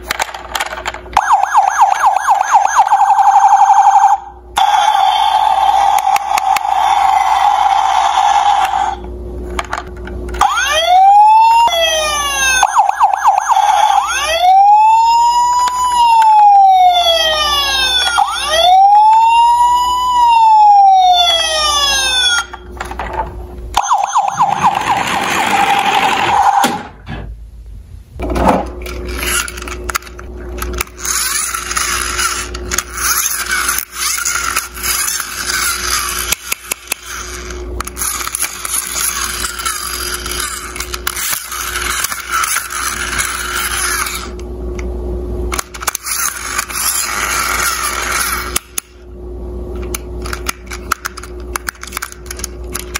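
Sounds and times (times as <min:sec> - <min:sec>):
toy siren wailing: 0:01.2 - 0:09.0, 0:10.4 - 0:22.6, 0:23.8 - 0:26.7, 0:30.8 - 0:44.4, 0:45.9 - 0:48.6.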